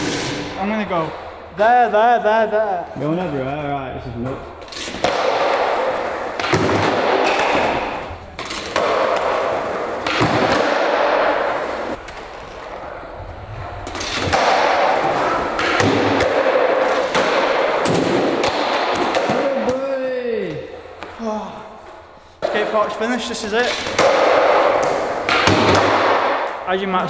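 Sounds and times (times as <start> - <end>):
skateboard wheels rolling on concrete: 4.6 - 19.5
skateboard clacks: 13.9 - 19.8.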